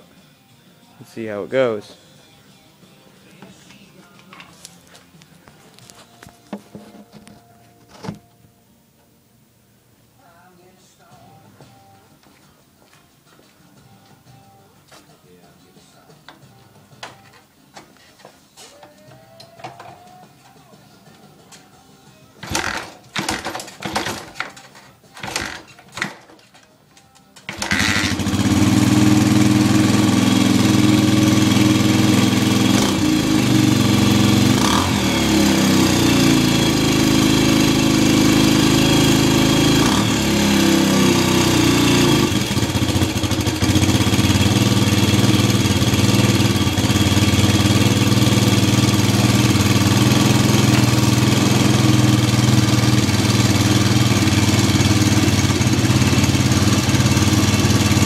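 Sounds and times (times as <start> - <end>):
motorcycle engine revving and idling: 22.4 - 24.6, 25.2 - 26.3, 27.5 - 58.0
motorcycle kick-start: 22.4 - 58.0.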